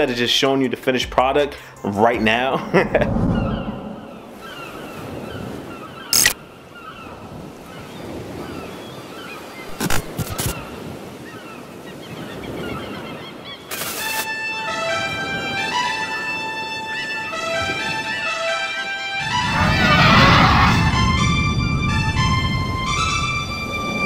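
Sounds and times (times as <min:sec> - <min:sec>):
rushing noise bursts: 0:02.8 - 0:04.8
bird calls: 0:03.3 - 0:14.2
music with held notes: 0:14.2 - 0:24.0.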